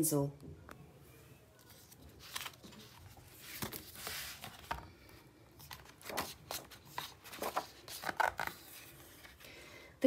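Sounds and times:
book pages turning: 0:01.6 - 0:09.4.

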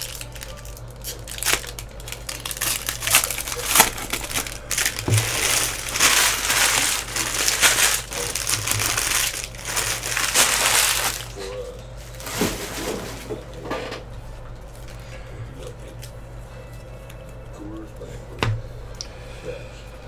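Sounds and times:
card pack wrappers crinkling: 0:00.0 - 0:13.3.

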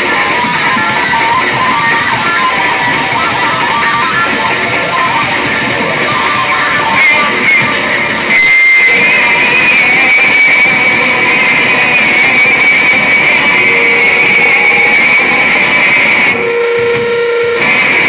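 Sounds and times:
distorted bass guitar: 0:00.0 - 0:18.0
drum kit: 0:00.0 - 0:18.0
steady high whine: 0:00.0 - 0:18.0.

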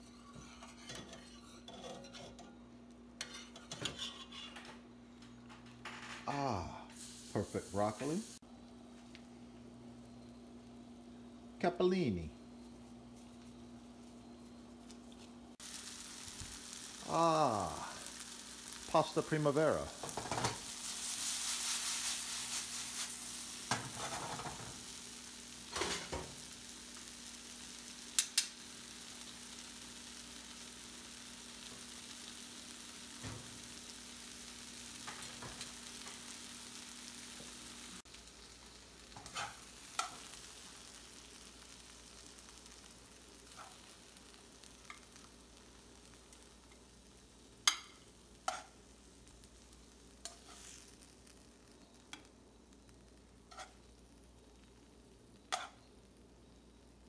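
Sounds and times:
vegetables sizzling in a pan: 0:00.0 - 0:57.0.

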